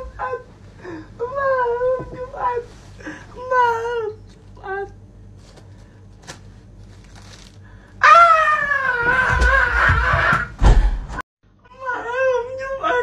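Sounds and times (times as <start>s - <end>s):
person screaming: 8.0s - 10.5s.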